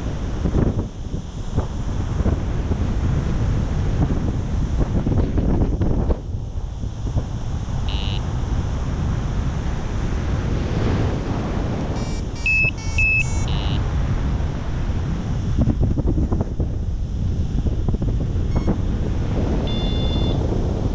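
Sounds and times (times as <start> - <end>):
wind rushing over microphone: 0.0 - 20.9
short electronic beeps: 7.9 - 8.2, 12.0 - 13.8, 18.5 - 18.8, 19.7 - 20.4.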